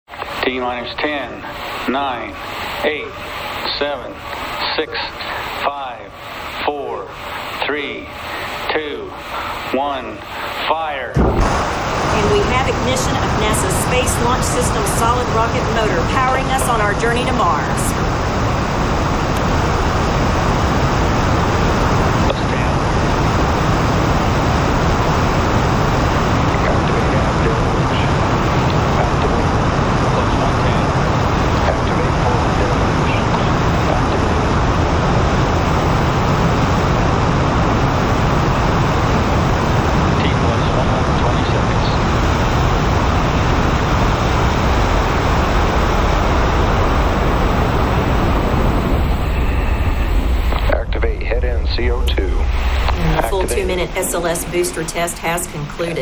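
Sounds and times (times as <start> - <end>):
rocket booster firing: 11.2 - 14.1
rocket booster roaring: 11.2 - 55.4.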